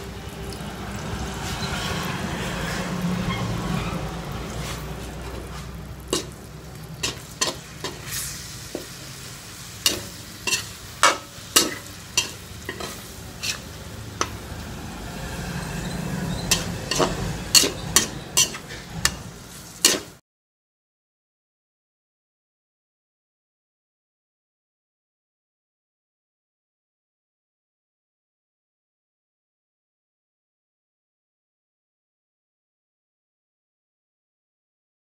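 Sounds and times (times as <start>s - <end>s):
metal spatula scraping a wok: 0.0s - 20.2s
wok sizzling: 0.0s - 20.2s.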